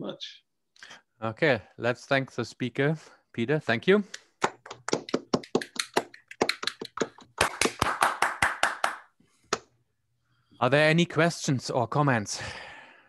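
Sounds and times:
small audience applauding: 0:04.4 - 0:09.1.

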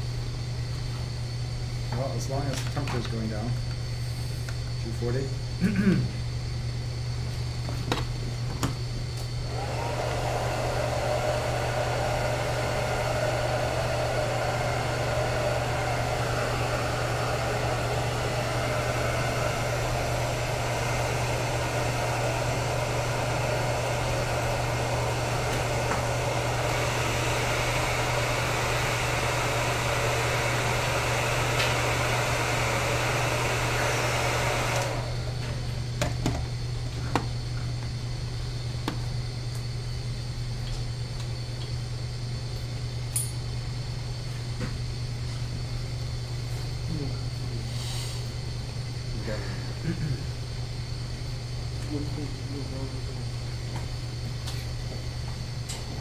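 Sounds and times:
constant low hum: 0:35.2 - 0:56.0
liquid helium hissing: 0:47.6 - 0:48.4.

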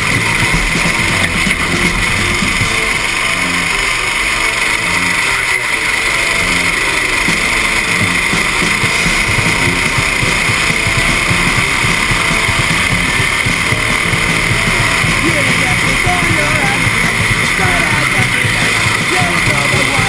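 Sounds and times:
go-kart engine running hard: 0:00.0 - 0:20.0
steady rushing noise: 0:00.0 - 0:20.0.

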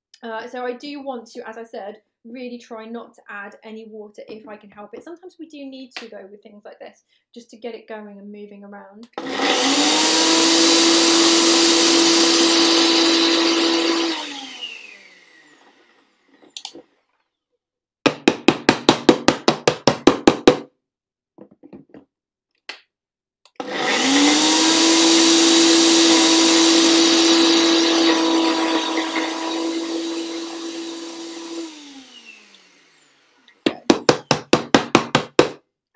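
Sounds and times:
blender running: 0:09.1 - 0:16.5, 0:23.5 - 0:34.2.

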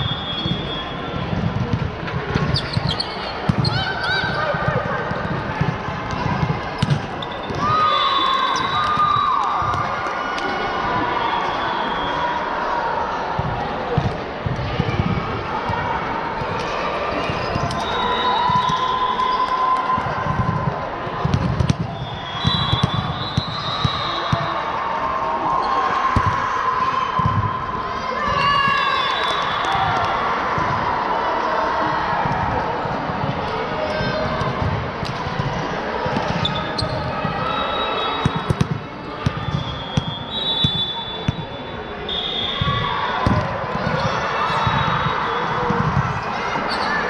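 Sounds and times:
gym hall din: 0:00.0 - 0:47.0
players' voices echoing: 0:00.0 - 0:47.0
volleyball struck and bouncing: 0:01.3 - 0:07.7, 0:20.0 - 0:24.6, 0:38.2 - 0:41.5, 0:42.6 - 0:46.2
short high squeaks: 0:02.6 - 0:03.3.

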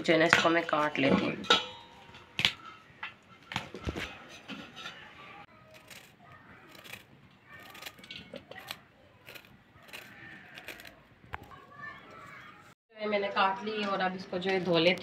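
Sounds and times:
knife cutting cauliflower: 0:05.7 - 0:11.0.

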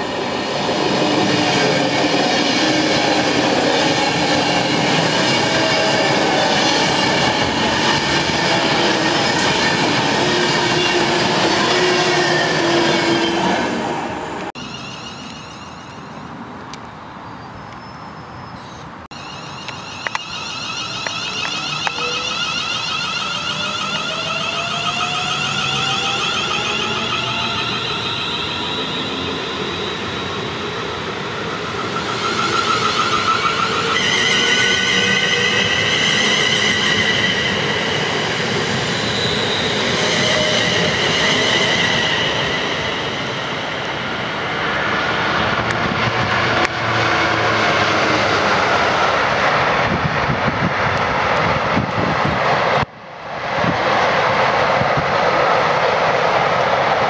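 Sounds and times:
freight train rumbling past: 0:00.0 - 0:16.6, 0:19.1 - 0:57.0
wheel and rail noise: 0:18.6 - 0:57.0
electric train motors whining: 0:19.2 - 0:30.1.

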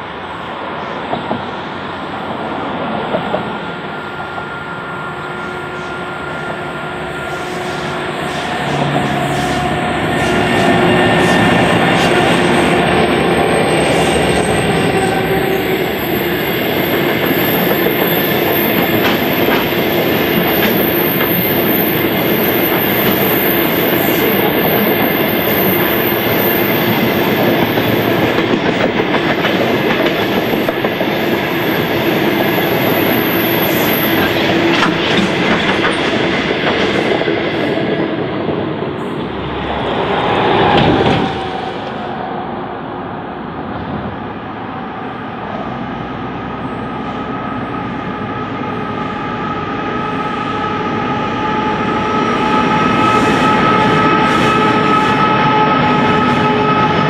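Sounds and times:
freight train rumbling past: 0:00.0 - 0:57.0
high wheel squeal: 0:04.4 - 0:28.2.

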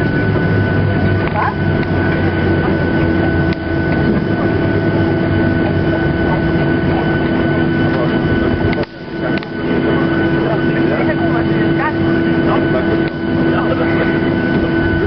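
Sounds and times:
high steady whine: 0:00.0 - 0:15.0
jet engine cabin din: 0:00.0 - 0:15.0.

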